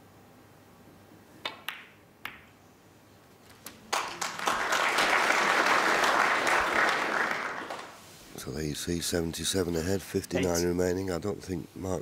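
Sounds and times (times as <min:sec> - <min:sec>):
audience applauding: 0:03.9 - 0:08.0.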